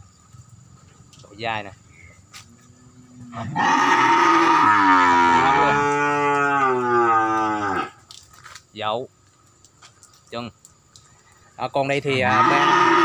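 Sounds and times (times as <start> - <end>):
cow mooing: 3.0 - 8.0, 12.2 - 13.0.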